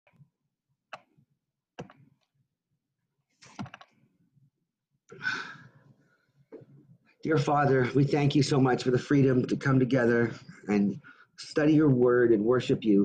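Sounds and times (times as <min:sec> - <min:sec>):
laptop clicks and taps: 0:00.9 - 0:01.2, 0:01.8 - 0:02.4, 0:03.4 - 0:04.0.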